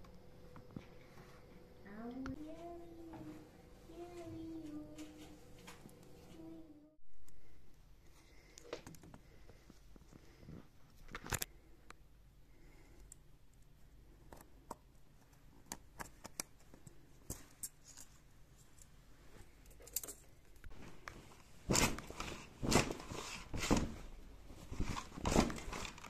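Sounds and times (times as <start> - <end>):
fabric rustling: 20.7 - 26.0.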